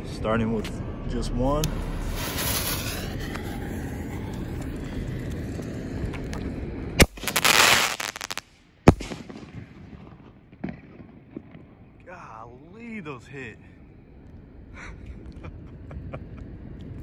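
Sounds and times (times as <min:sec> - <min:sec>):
firework hissing: 0:01.9 - 0:05.4, 0:07.0 - 0:08.5
firework crackling: 0:01.9 - 0:11.6
firework bang: 0:07.0 - 0:11.8.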